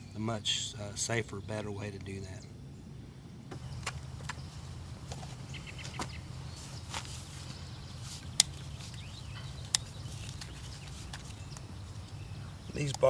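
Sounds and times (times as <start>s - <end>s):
steady low hum: 0.0s - 13.0s
hoof trimming tool clicks: 8.2s - 11.6s.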